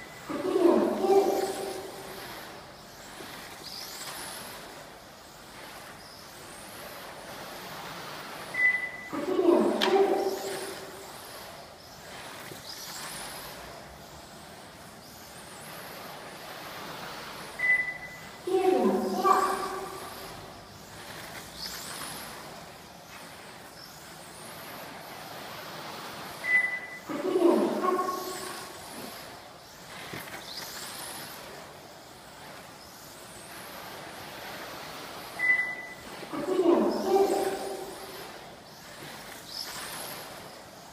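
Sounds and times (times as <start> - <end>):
tyres hissing on track: 0.0 - 31.4, 32.2 - 40.9
short high beep: 8.6 - 9.2, 17.6 - 18.3, 26.4 - 27.1, 35.4 - 36.0.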